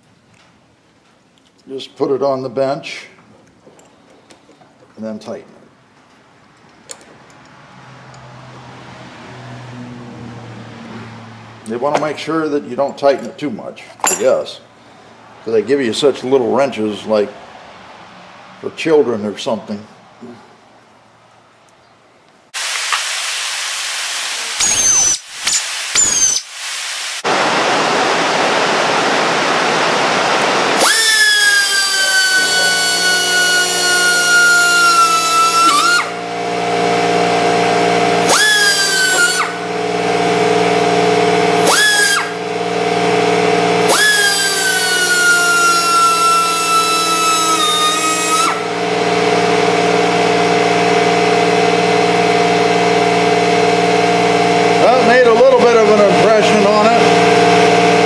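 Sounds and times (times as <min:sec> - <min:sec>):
air die grinder whine: 0:24.4 - 0:26.4, 0:27.2 - 0:58.0
low motor drone: 0:27.3 - 0:58.0.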